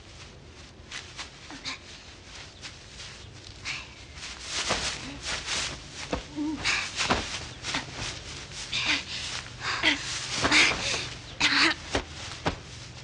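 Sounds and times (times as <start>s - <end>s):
rustling and scuffling in grass: 0.0s - 13.0s
women grunting and gasping: 6.1s - 12.1s.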